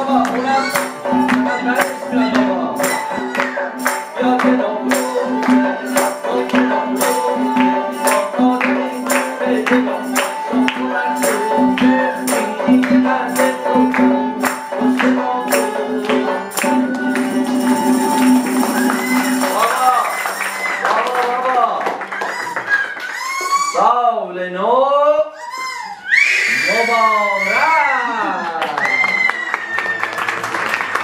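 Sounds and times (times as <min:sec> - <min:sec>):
bowed fiddle: 0:00.0 - 0:04.2
plucked long-necked lute: 0:00.0 - 0:19.7
hand drum beating: 0:00.0 - 0:20.1
jingling frame drums: 0:00.0 - 0:20.8.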